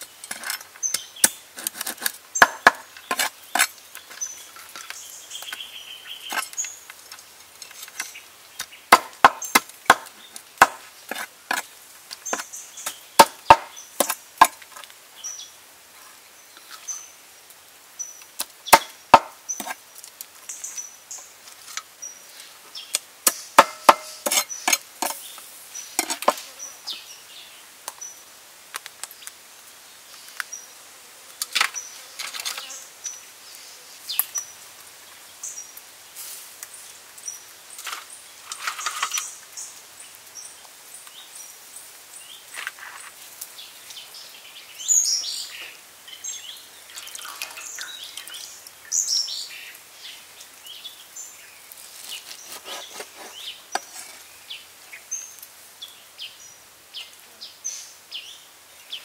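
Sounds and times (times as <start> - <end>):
cleaver chopping on wooden board: 2.4 - 3.7, 8.9 - 11.6, 13.2 - 14.6, 18.7 - 19.7, 23.3 - 25.2.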